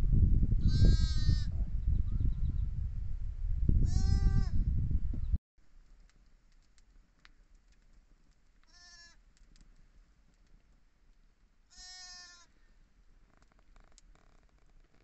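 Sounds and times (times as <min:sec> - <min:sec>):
sheep bleating: 0:08.7 - 0:09.2, 0:11.7 - 0:12.5
faint clicks: 0:13.3 - 0:15.0.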